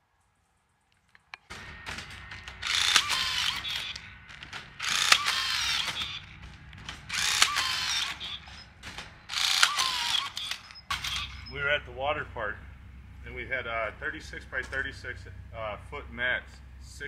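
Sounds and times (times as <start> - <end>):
rebar tying tool motor and gears: 1.0 - 11.8.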